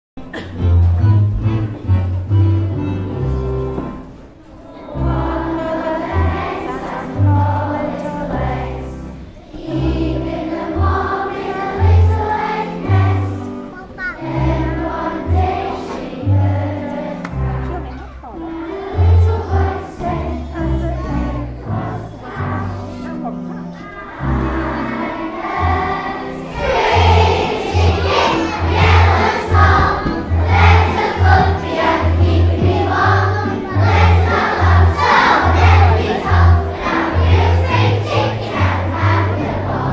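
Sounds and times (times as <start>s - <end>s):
children singing together: 4.5s - 39.9s.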